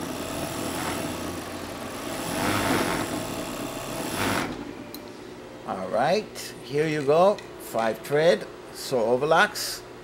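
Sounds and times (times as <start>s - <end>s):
overlock sewing machine stitching: 0.0s - 1.4s, 2.0s - 4.6s.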